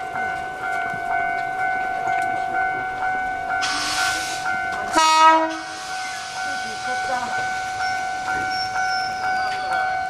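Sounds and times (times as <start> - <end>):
level crossing bell ringing: 0.0 - 10.0
hiss: 3.6 - 4.5, 5.5 - 8.8
train horn blast: 3.6 - 5.8.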